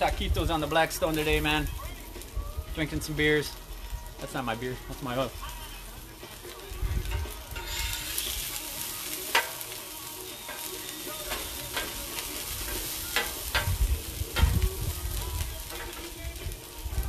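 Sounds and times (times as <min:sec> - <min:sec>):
onions sizzling on a griddle: 0:00.0 - 0:17.0
spatula scraping steel plate: 0:07.6 - 0:08.3.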